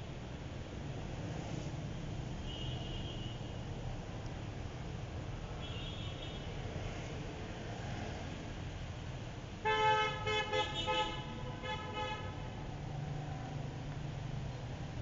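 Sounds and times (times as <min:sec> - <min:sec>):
low rumble of traffic: 0:00.0 - 0:15.0
vehicle horn honking: 0:09.7 - 0:12.3.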